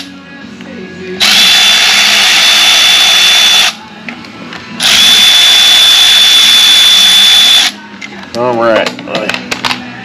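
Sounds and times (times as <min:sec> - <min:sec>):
cordless power tool whine: 0:01.2 - 0:03.8, 0:04.8 - 0:07.7.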